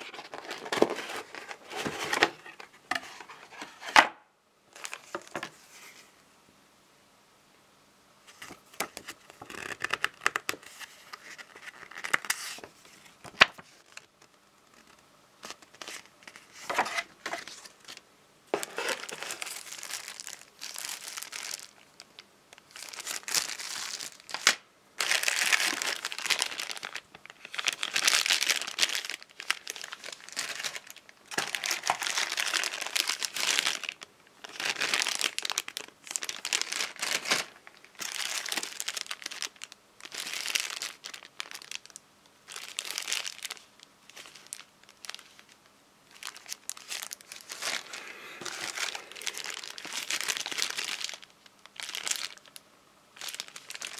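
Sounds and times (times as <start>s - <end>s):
plastic bags crinkling: 0.0s - 4.0s, 14.7s - 52.6s, 53.2s - 53.9s.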